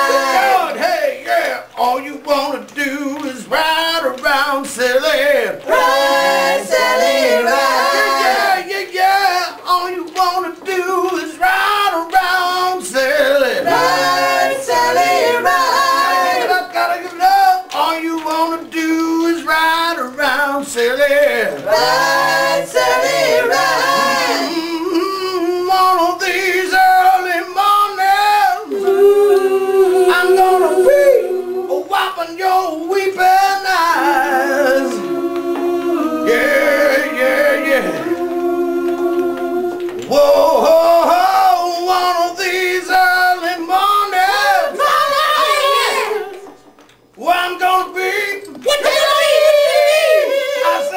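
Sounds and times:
group singing a cappella: 0.0 - 50.9.

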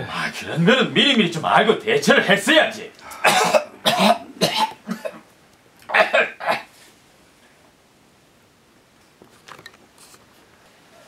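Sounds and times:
person's voice: 0.0 - 3.7.

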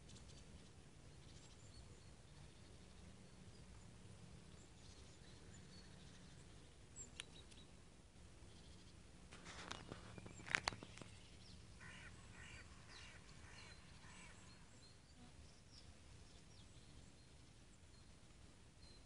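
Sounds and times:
bird calls: 8.5 - 18.1
high chirps of small birds: 8.5 - 18.1.

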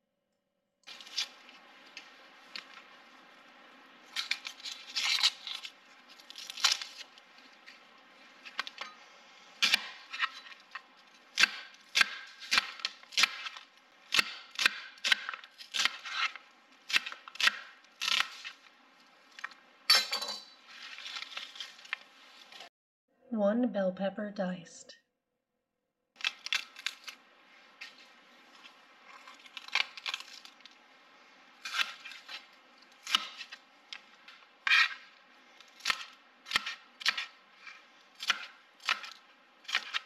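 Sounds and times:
knife chopping vegetables: 9.6 - 10.7, 11.3 - 18.6, 31.6 - 33.6, 35.7 - 40.0
rustling scrapes: 20.6 - 22.7.

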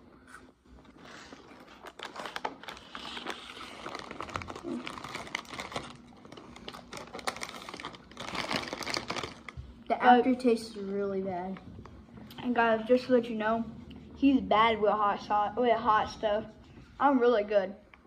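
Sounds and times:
chip bag crinkling: 0.8 - 9.6.

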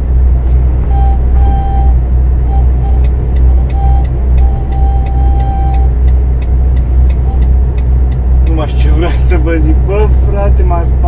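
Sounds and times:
lorry engine and road noise: 0.0 - 11.0
faint regular ticking: 2.8 - 10.2.

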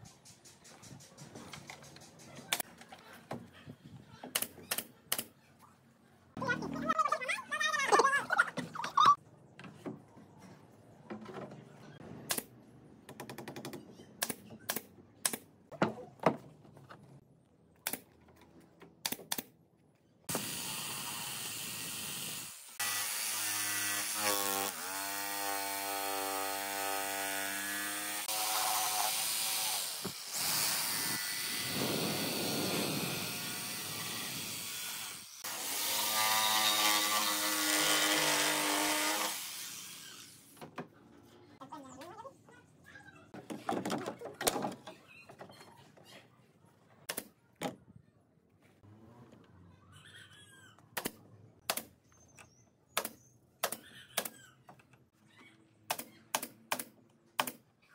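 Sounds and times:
jigsaw cutting wood: 20.3 - 40.4
handheld power tool: 20.3 - 40.5.

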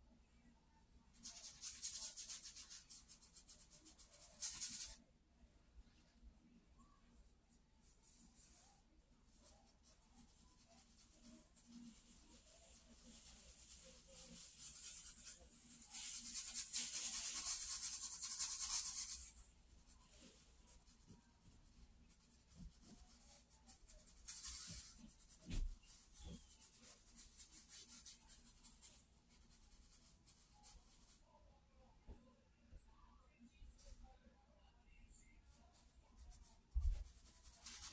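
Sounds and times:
charcoal scratching on paper: 1.2 - 5.0, 8.0 - 31.2, 35.6 - 37.9.

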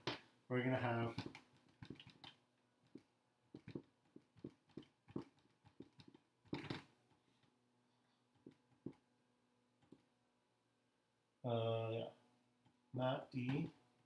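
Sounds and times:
marker scratching on whiteboard: 0.8 - 6.9.

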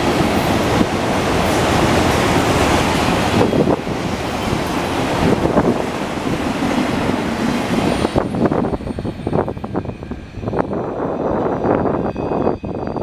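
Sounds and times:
train wheels rolling on rails: 0.0 - 13.0.

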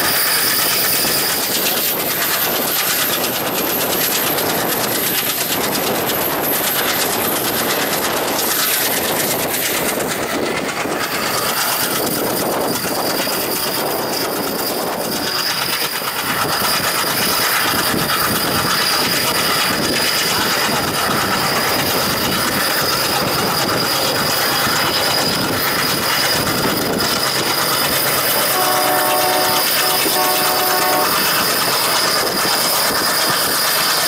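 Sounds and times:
train wheels clattering over rail joints: 0.0 - 34.0.

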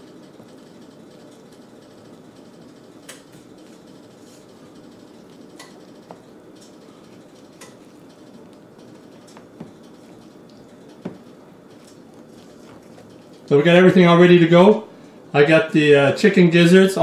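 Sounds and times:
low background hum: 0.0 - 17.0
utensil stirring batter: 3.6 - 13.9.

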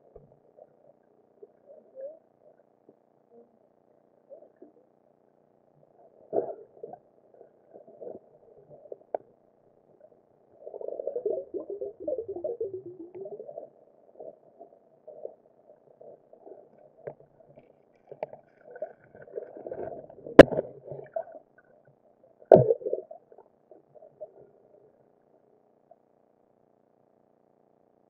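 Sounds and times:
water sloshing and gurgling: 6.2 - 25.0.

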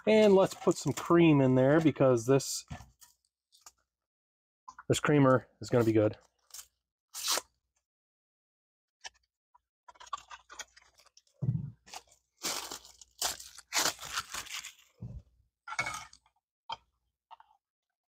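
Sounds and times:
plastic packet crinkling: 11.9 - 14.9.

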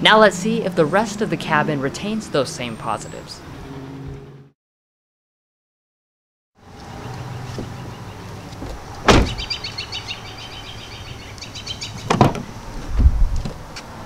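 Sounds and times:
low door thump: 8.6 - 9.5, 12.1 - 13.6
car door shutting: 8.6 - 9.6, 12.0 - 13.6.

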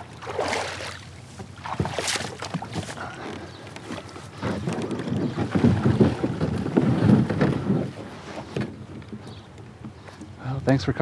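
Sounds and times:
water splashing among rocks: 0.0 - 3.0
kayak hull knock: 1.4 - 10.3.

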